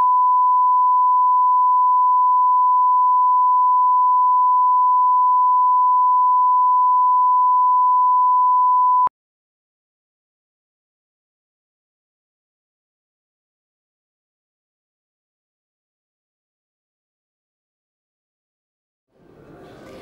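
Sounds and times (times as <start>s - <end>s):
steady reference tone beep: 0.0s - 9.1s.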